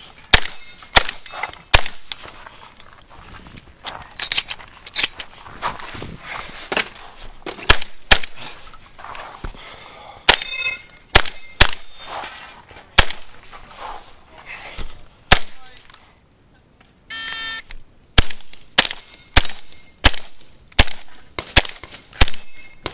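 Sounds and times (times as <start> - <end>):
shotgun shots: 0.3 - 2.1, 7.6 - 8.4, 11.1 - 12.0, 13.0 - 13.3, 15.3 - 15.7, 18.2 - 22.9.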